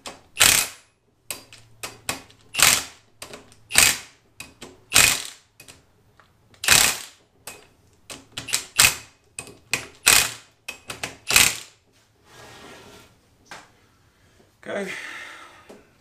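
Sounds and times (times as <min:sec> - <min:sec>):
cordless driver rattling bursts: 0:00.4 - 0:00.8, 0:02.5 - 0:03.0, 0:03.7 - 0:04.1, 0:04.9 - 0:05.4, 0:06.6 - 0:07.2, 0:10.0 - 0:10.5, 0:11.2 - 0:11.8.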